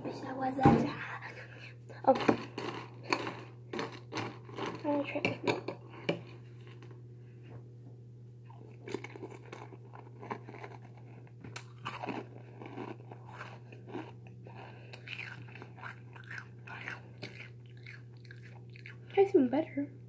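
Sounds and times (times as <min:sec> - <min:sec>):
steady low hum: 0:00.0 - 0:20.0
person chewing crunchy cereal: 0:02.0 - 0:07.0, 0:08.4 - 0:19.2.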